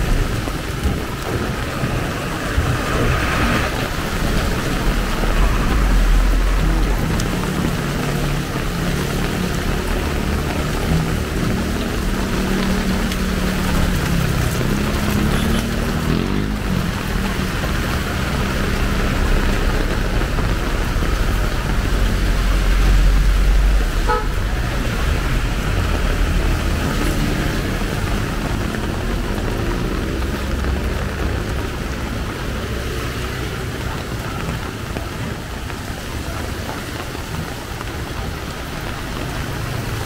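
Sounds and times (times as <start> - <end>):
heavy rain and tyre spray: 0.0 - 40.0
heavy vehicle rumble: 0.0 - 40.0
short horn toot: 24.0 - 24.4.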